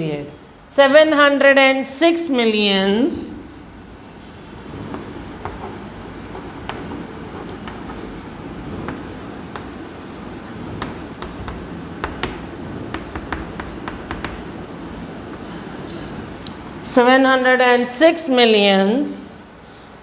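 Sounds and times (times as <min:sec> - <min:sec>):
chalk tapping on board: 0:05.0 - 0:08.1, 0:08.9 - 0:14.8
chalk scratching on chalkboard: 0:05.0 - 0:08.2, 0:08.9 - 0:14.8.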